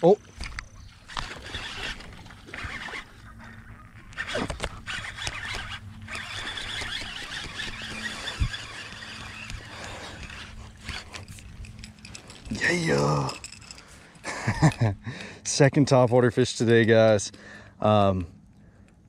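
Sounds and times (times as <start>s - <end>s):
reel clicks: 0.3s - 13.9s
fishing reel whirring: 0.4s - 13.9s.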